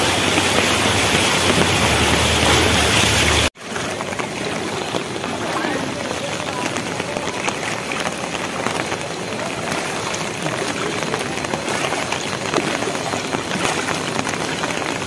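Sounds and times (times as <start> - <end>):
heavy rain on flooded road: 0.0 - 15.0.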